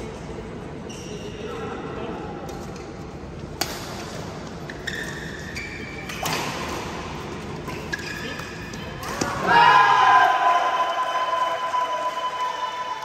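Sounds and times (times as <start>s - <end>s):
hubbub of hall: 0.0s - 13.0s
court shoes squeaking: 0.8s - 1.8s, 2.4s - 9.3s.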